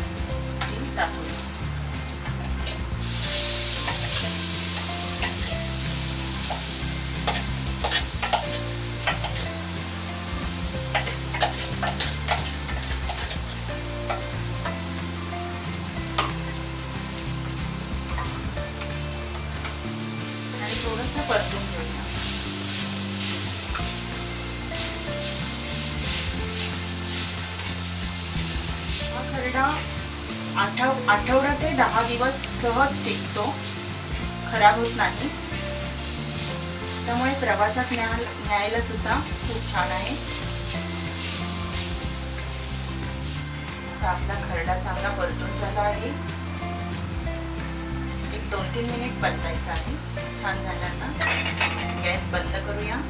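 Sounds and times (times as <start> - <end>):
background music: 0.0 - 53.0
food sizzling in hot oil: 0.0 - 53.0
spatula scraping a pan: 2.4 - 9.5, 10.9 - 14.8.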